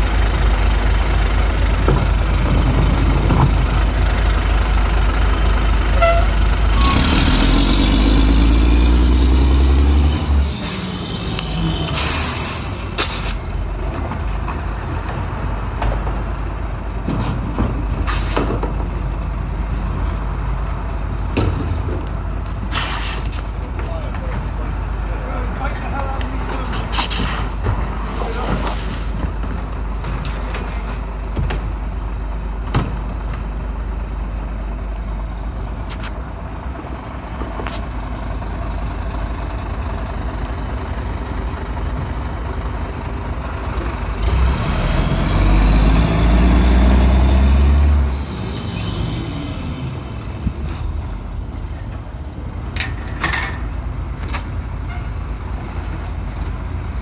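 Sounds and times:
garbage truck engine idling: 0.0s - 6.8s
engine revving loudly: 6.8s - 12.1s, 44.2s - 48.3s
high squeal: 10.1s - 13.6s, 48.1s - 51.4s.

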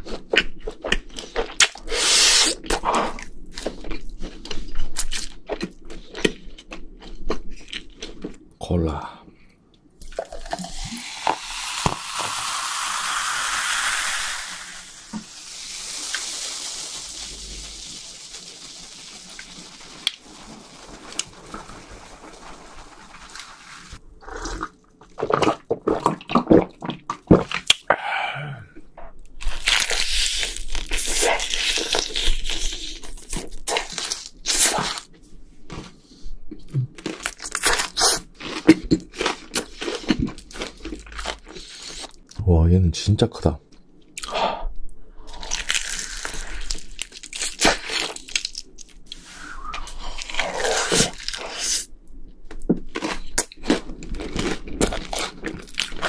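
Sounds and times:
crunching and chewing food: 0.0s - 8.7s, 24.2s - 27.9s, 28.7s - 42.4s, 45.2s - 56.0s
soda fizzing: 10.1s - 24.8s
soda pouring into a glass: 10.2s - 24.0s.

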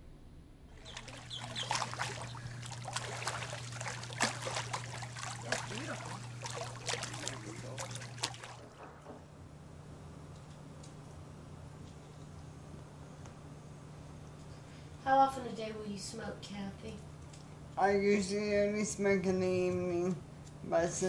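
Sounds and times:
low steady hum: 0.0s - 21.0s
pool water splashing: 0.7s - 9.4s.

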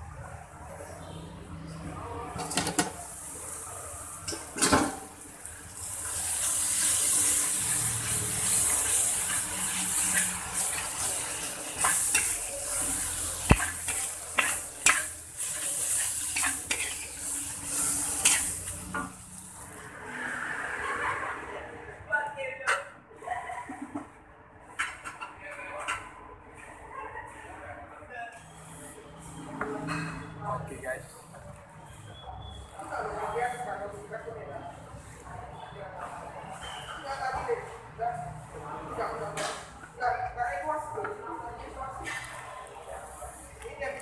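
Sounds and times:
noodles sizzling in a wok: 2.8s - 20.0s
metal spatula scraping a wok: 5.7s - 20.5s.

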